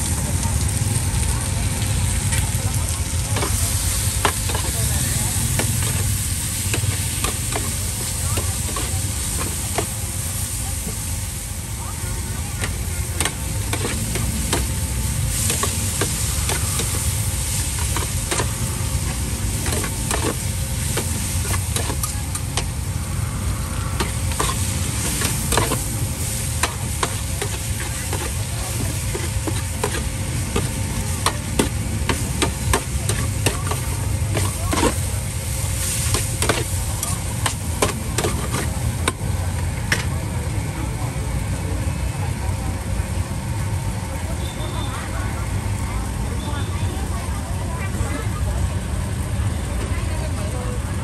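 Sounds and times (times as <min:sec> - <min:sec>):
food sizzling in a pan: 0:00.0 - 0:51.0
utensil scraping a pan: 0:03.4 - 0:10.0, 0:12.6 - 0:14.8, 0:15.4 - 0:22.7, 0:23.9 - 0:26.0, 0:26.6 - 0:35.1, 0:35.9 - 0:39.1.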